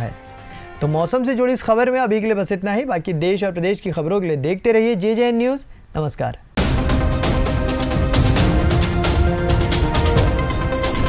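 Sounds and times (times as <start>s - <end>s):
fast percussion beat: 6.6s - 11.0s.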